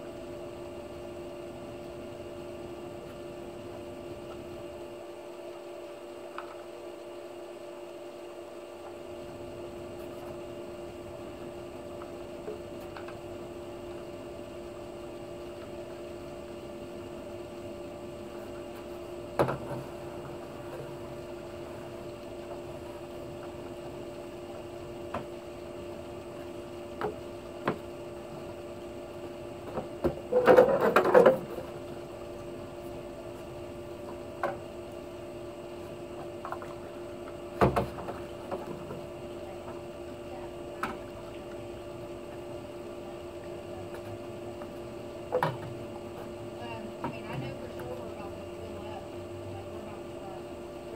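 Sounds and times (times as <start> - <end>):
steady hum: 0.0 - 50.9.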